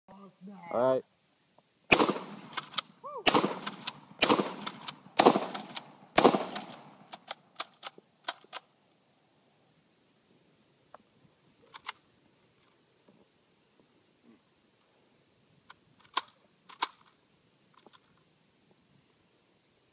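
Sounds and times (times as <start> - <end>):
shotgun shots: 1.9 - 7.2
shotgun pump clacks: 2.4 - 8.6, 16.0 - 17.2
gun action clicking: 15.7 - 17.2.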